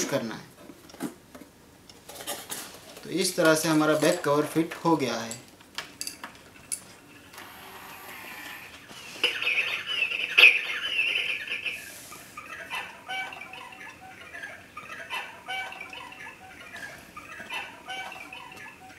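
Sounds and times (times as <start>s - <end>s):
recorded bird chirps from clock: 9.2s - 11.8s.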